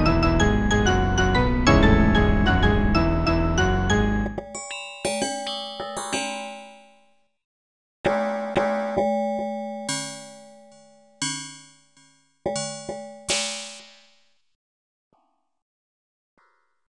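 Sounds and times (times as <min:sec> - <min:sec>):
synthesized piano chord clusters: 0:00.0 - 0:04.4.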